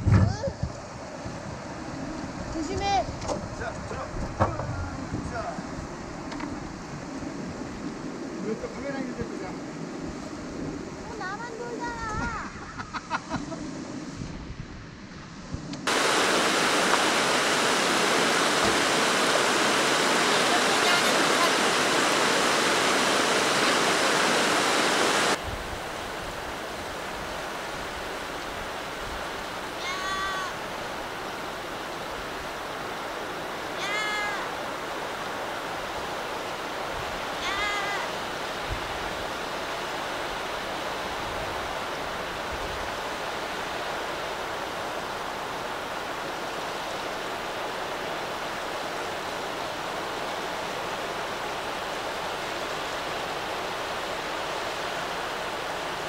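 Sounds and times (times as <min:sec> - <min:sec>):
hissy rush of water: 0:00.0 - 0:56.0
river water pouring over weir: 0:15.8 - 0:56.0.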